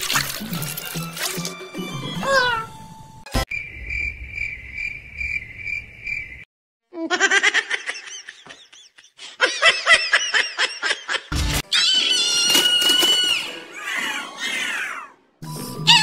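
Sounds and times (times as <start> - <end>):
crickets chirping: 3.5 - 6.5
high-pitched giggling laughter: 7.0 - 11.3.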